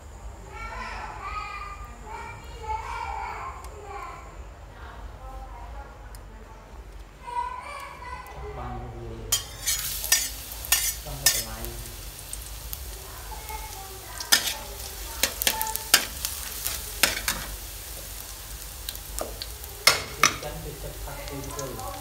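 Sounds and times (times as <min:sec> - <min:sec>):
metal spatula scraping wok: 0:09.3 - 0:11.6, 0:14.2 - 0:17.6
garlic sizzling in oil: 0:09.3 - 0:22.0.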